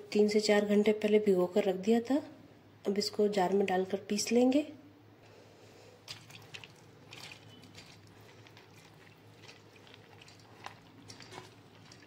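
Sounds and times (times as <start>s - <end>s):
wet lentils pattering: 6.0s - 12.0s.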